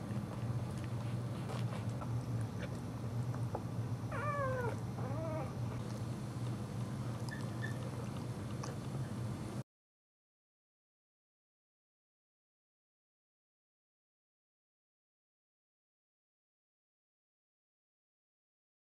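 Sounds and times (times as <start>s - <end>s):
steady low hum: 0.0s - 9.6s
dog whining: 4.1s - 5.9s, 7.3s - 8.0s.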